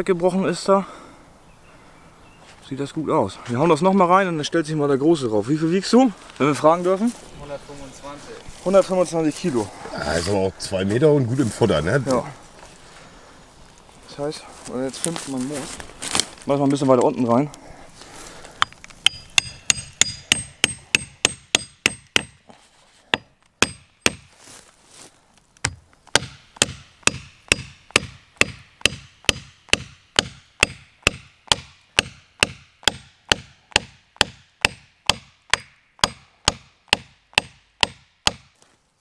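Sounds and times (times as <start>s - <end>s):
hatchet hammering on metal knife: 19.0s - 22.4s, 23.6s - 24.3s, 25.7s - 38.5s.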